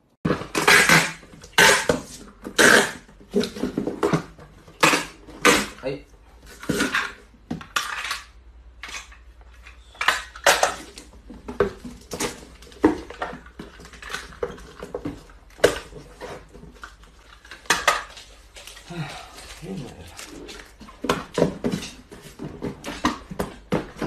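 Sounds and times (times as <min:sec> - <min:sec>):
cardboard boxes rustling and knocking: 0:00.3 - 0:05.8, 0:10.5 - 0:24.0.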